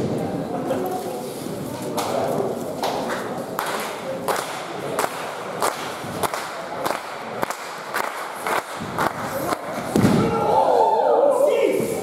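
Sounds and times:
crowd clapping in unison: 2.8s - 9.7s.

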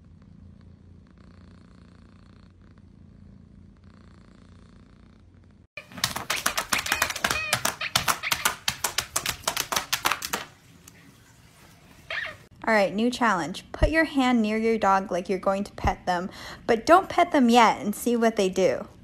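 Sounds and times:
cat purring: 0.0s - 5.7s
dog pawing tablet touch screen: 5.8s - 11.0s.

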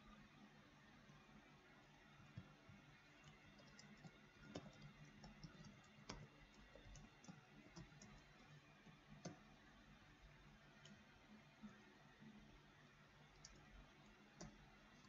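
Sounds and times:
keyboard typing clicks: 3.2s - 9.5s, 13.4s - 14.6s.

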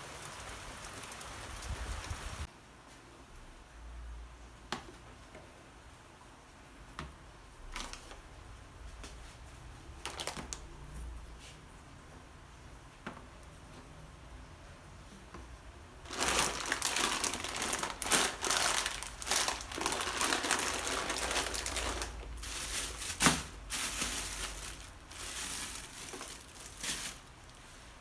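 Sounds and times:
plastic wrapping crinkling: 7.7s - 8.2s, 10.0s - 10.6s, 16.0s - 28.0s.

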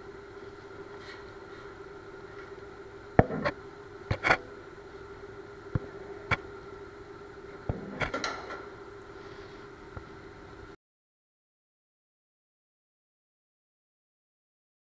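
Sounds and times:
steady hum: 0.0s - 10.8s
metallic clicks and clanks: 7.7s - 8.7s.

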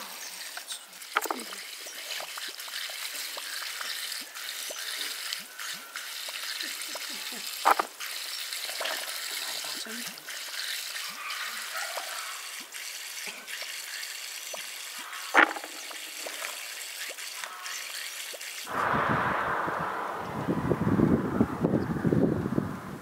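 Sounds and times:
wind rumble on microphone: 18.7s - 23.0s.

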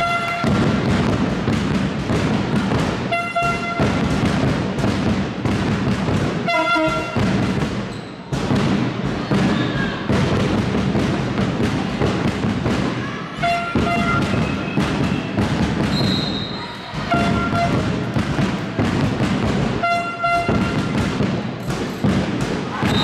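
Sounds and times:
crowd din: 0.0s - 23.0s
rapid percussive beats: 0.0s - 23.0s
horn short blasts: 6.5s - 7.2s, 19.8s - 20.7s.

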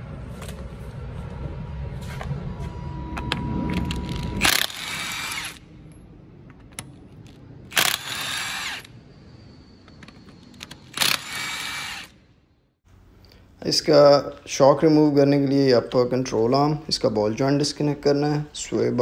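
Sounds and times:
impact wrench spinning off lug nuts: 4.1s - 5.6s, 7.7s - 8.9s, 10.8s - 12.2s.

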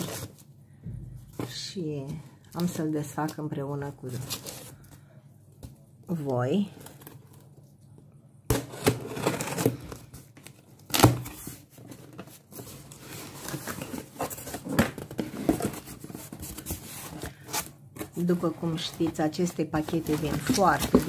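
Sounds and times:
cardboard rustling and scraping: 0.0s - 0.5s, 4.0s - 5.0s, 8.5s - 21.0s.

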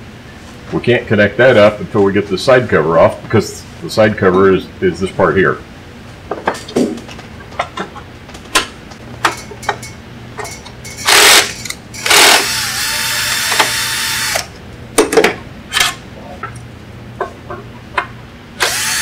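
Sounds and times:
cordless drill whirring: 11.1s - 14.5s, 18.6s - 19.0s.

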